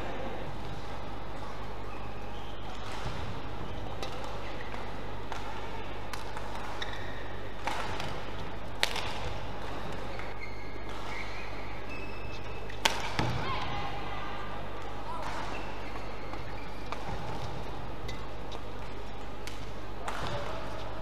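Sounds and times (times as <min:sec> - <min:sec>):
steady hall hum: 0:00.0 - 0:21.0
racket hitting shuttlecock: 0:02.7 - 0:11.4, 0:12.7 - 0:13.6, 0:19.4 - 0:20.9
shoes squeaking on court: 0:06.6 - 0:07.4, 0:09.7 - 0:13.3, 0:15.2 - 0:19.4.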